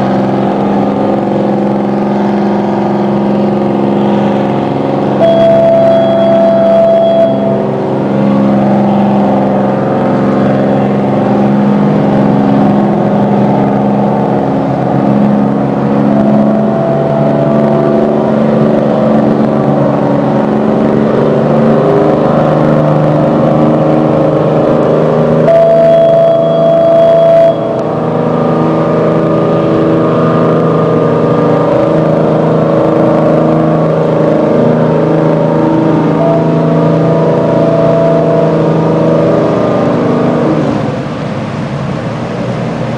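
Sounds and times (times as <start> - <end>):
boat diesel engines droning: 0.0 - 42.9
fog horn blast: 5.2 - 11.0, 25.4 - 28.5, 35.6 - 40.4.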